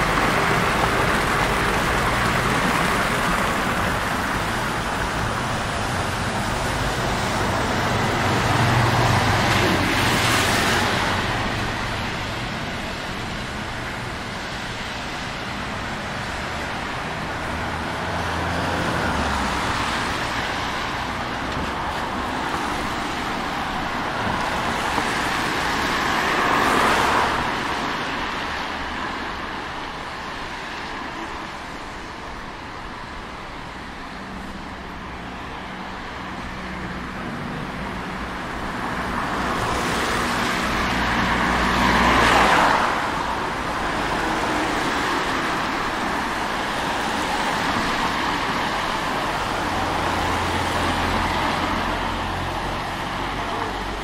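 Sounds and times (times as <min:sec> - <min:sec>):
tyres hissing on wet asphalt: 0:00.0 - 0:54.0.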